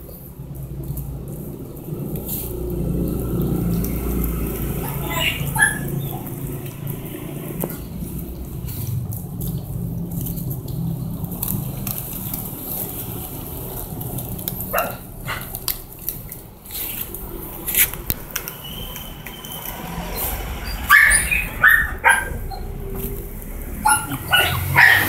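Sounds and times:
puppies yelping and whimpering: 4.7s - 6.4s, 19.3s - 23.2s, 23.8s - 25.0s.

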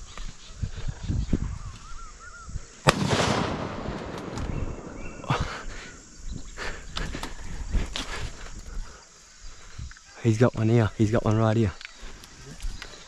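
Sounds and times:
sharp loud crack: 2.9s - 5.3s.

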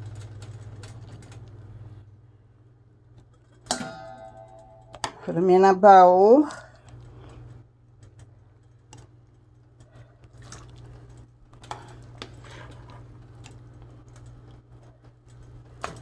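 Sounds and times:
low hum: 0.0s - 16.0s.

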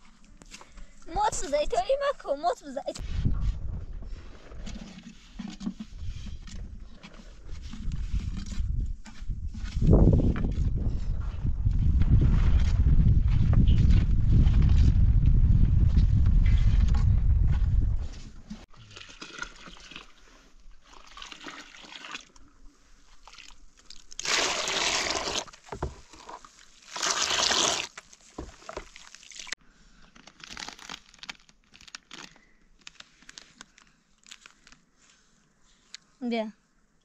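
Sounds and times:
foil packet crinkling: 29.0s - 34.8s.

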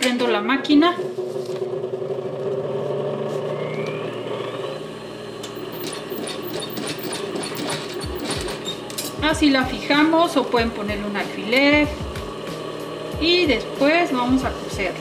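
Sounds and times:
sewing machine motor humming: 1.4s - 9.0s.

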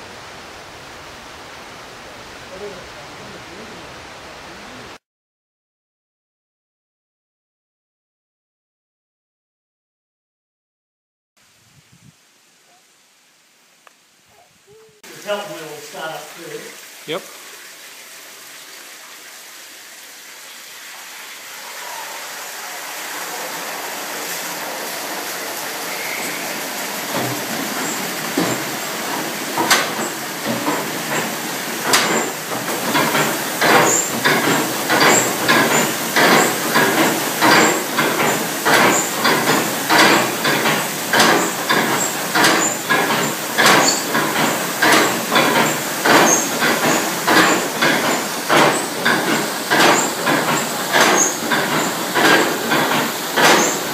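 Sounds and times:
rushing water: 0.0s - 5.0s, 11.4s - 53.9s
running belts: 27.1s - 53.9s
heavy metal stamps pounding: 29.6s - 53.9s.

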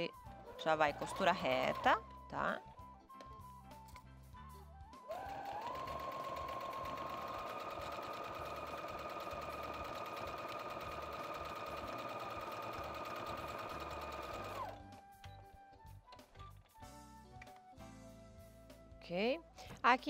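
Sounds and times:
sewing machine stitching: 0.9s - 2.0s, 5.1s - 14.8s.

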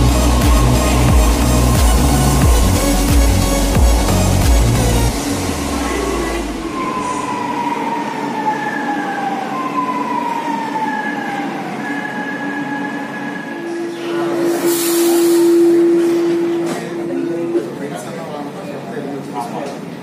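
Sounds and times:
steady low tone: 0.0s - 8.5s, 12.4s - 18.9s
electric train motor whine: 0.0s - 18.1s.

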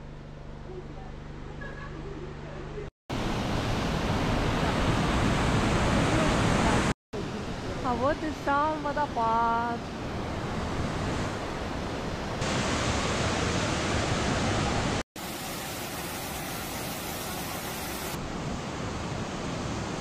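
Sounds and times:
waterfall and rapids rushing: 3.1s - 8.8s, 9.8s - 20.0s.

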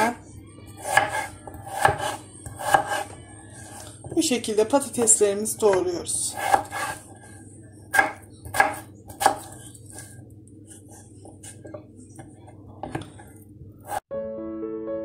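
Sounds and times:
knife chopping on wooden board: 0.8s - 3.0s, 5.7s - 7.0s, 7.9s - 10.1s.

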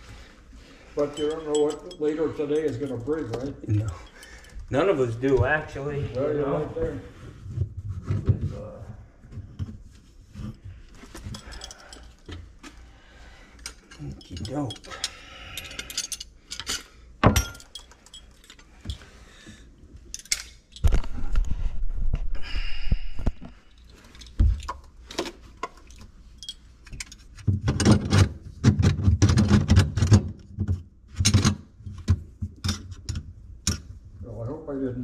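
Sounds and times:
metal parts clinking and clunking: 1.0s - 5.8s, 10.5s - 12.8s, 13.6s - 19.2s, 20.0s - 21.1s, 23.7s - 30.2s, 31.2s - 33.9s.

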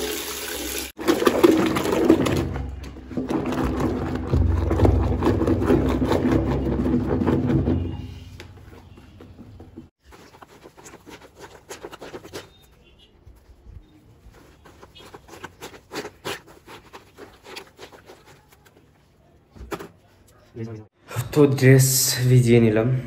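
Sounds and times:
water churning and sloshing: 0.9s - 8.0s
wet clothes squelching: 9.9s - 13.2s, 14.1s - 18.9s.

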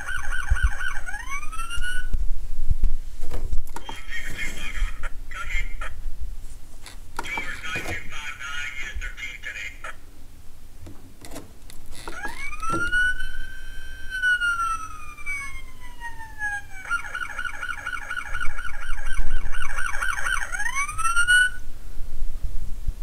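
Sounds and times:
toy police siren wailing: 0.0s - 2.2s, 12.0s - 21.6s.

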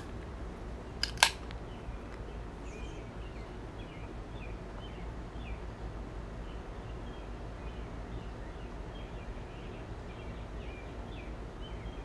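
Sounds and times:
faint birds chirping: 0.7s - 12.0s
beer can opening click and crack: 1.0s - 1.5s.

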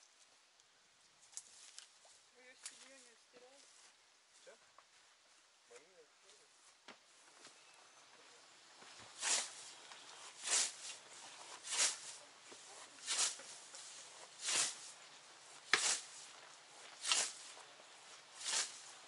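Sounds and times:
scythe swishing through grass: 9.1s - 19.0s.

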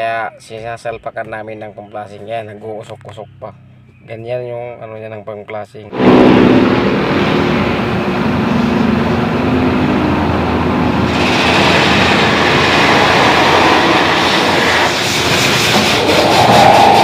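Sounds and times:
compressed air hissing: 11.0s - 17.0s.

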